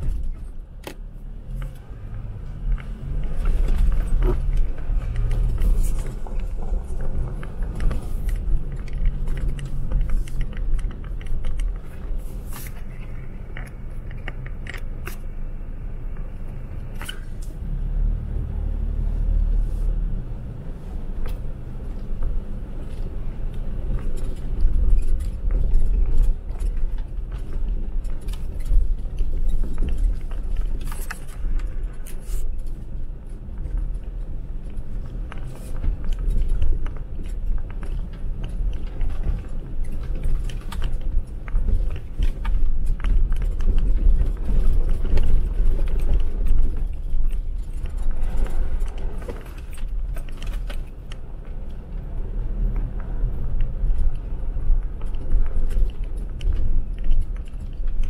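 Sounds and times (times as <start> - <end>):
engine and tyres rumbling: 0.0 - 58.0
clicks and rattles: 2.7 - 15.3.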